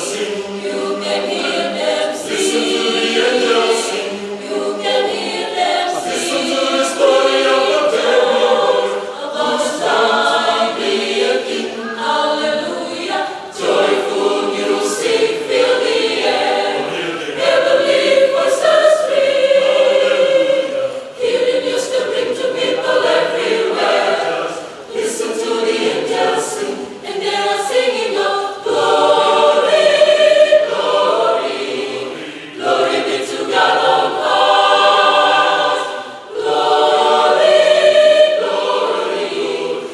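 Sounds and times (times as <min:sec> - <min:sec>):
mixed choir singing: 0:00.0 - 0:39.9.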